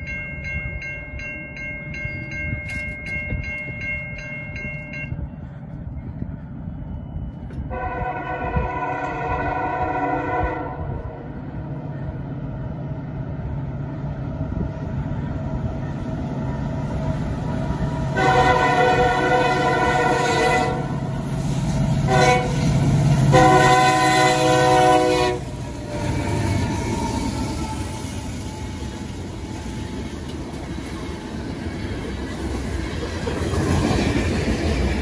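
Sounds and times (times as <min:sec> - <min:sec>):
diesel locomotive engine rumble: 0:00.0 - 0:35.0
locomotive air horn blasts: 0:07.7 - 0:11.3, 0:18.1 - 0:21.0, 0:22.0 - 0:27.0.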